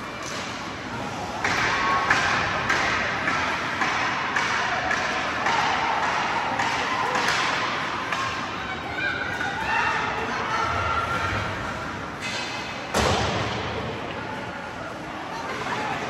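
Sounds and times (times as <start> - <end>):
spectators' voices and calls: 0.0 - 16.0
sticks and puck clacking on ice: 1.4 - 8.5.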